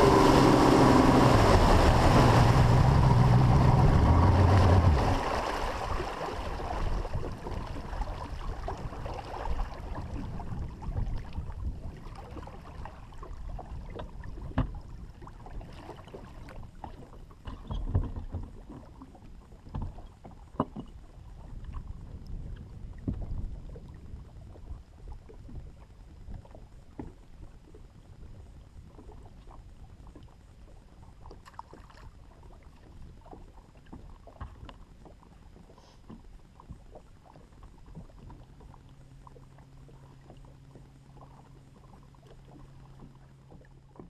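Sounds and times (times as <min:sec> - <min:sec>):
low rumble: 0:00.0 - 0:15.3
low steady hum: 0:00.0 - 0:44.0
water lapping against boat hull: 0:00.0 - 0:44.0.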